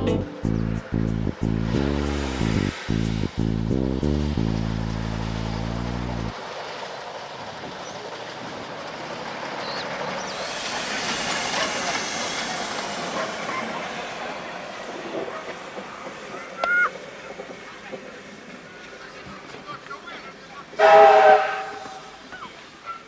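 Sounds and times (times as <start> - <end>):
steam locomotive running: 0.0 - 23.0
hiss of steam: 1.6 - 3.8, 10.1 - 18.8
loud train whistle blast: 20.8 - 22.2.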